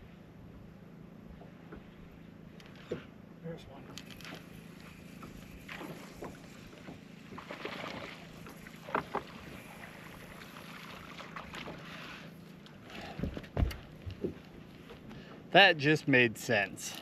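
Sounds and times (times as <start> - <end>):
steady low hum: 0.0 - 17.0
water splashing: 5.5 - 12.3.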